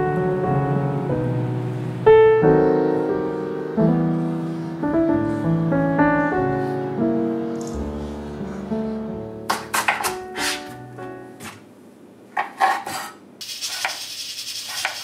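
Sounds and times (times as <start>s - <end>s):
slow piano chords: 0.0s - 11.8s.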